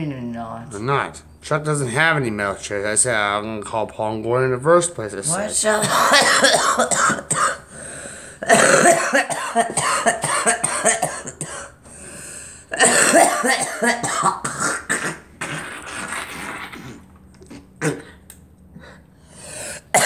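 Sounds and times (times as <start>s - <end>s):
woman coughing hard: 5.6s - 11.8s, 12.7s - 15.7s, 17.8s - 18.2s, 19.7s - 20.0s.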